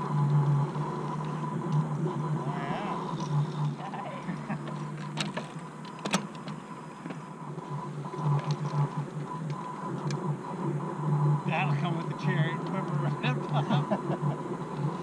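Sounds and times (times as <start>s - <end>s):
bicycle rumbling over dirt trail: 0.0s - 9.3s
faint high whine: 0.0s - 15.0s
sharp clicks and knocks: 4.6s - 7.2s.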